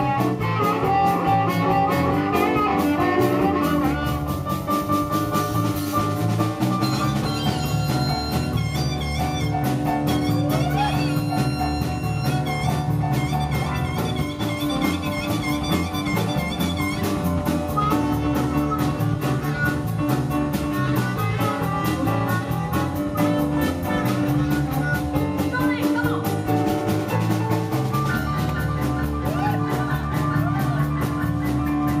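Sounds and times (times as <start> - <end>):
amplified blues harmonica: 0.0 - 25.5
drum kit: 0.0 - 32.0
keyboard: 0.0 - 32.0.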